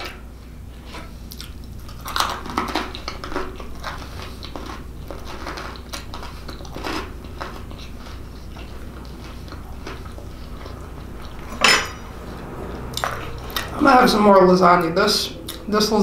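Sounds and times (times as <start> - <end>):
low steady hum: 0.0 - 16.0
person chewing: 0.7 - 11.4.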